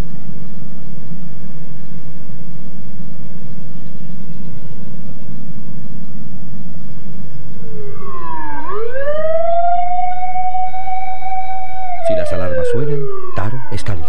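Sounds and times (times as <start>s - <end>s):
siren wailing: 7.4s - 14.0s.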